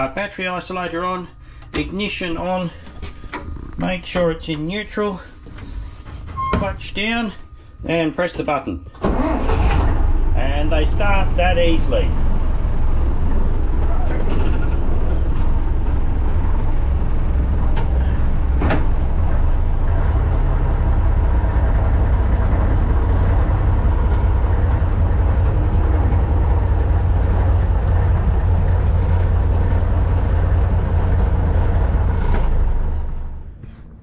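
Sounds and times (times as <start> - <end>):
diesel engine idling: 9.0 - 33.6.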